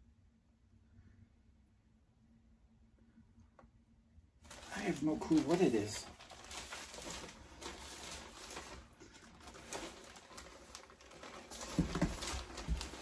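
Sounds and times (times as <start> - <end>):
plastic bag crinkling: 4.4 - 13.0.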